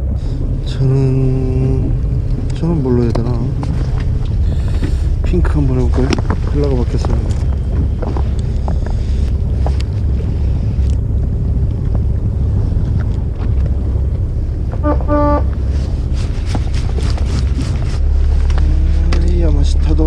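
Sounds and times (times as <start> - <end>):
wind buffeting microphone: 0.0 - 20.0
horn toot: 14.8 - 16.2.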